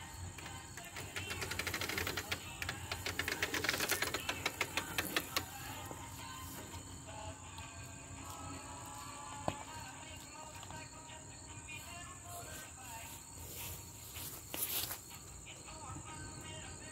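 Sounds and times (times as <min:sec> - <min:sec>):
lawn mower clicking rattle: 0:00.0 - 0:06.7.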